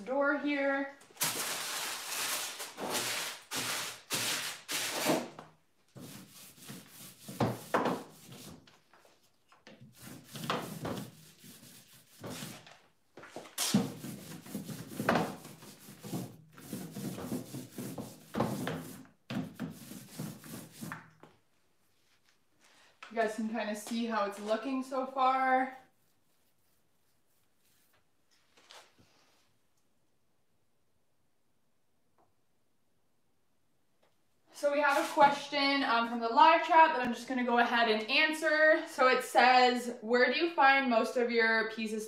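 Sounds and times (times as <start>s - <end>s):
paintbrush swishing on wood: 6.0s - 12.6s, 13.6s - 21.0s, 25.7s - 28.1s, 34.8s - 35.4s.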